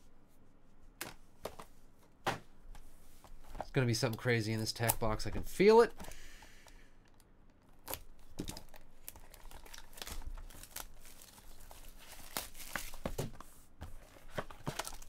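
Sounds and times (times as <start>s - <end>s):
plastic wrap crinkling: 7.9s - 13.1s.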